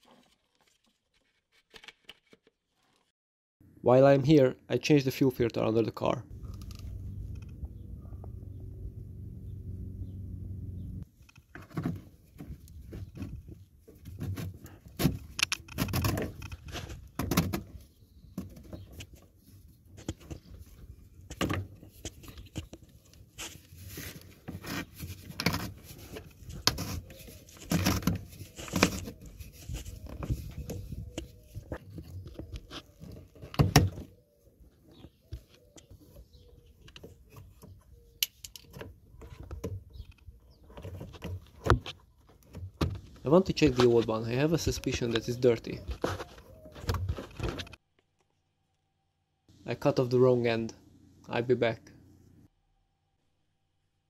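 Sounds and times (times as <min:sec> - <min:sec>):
plastic fittings clicking and scraping: 0:12.6 - 0:17.6.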